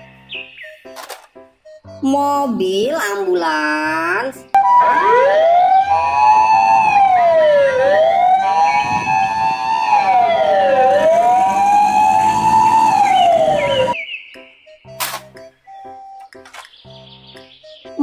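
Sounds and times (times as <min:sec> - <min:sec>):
two-note hi-lo siren tone: 0:04.6 - 0:14.0
wailing siren: 0:04.6 - 0:14.0.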